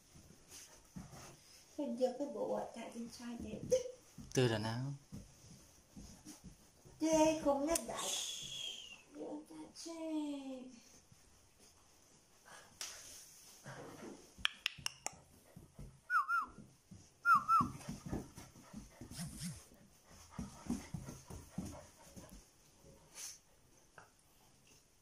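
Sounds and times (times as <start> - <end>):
dogs scuffling: 0.0 - 8.6, 15.2 - 23.4.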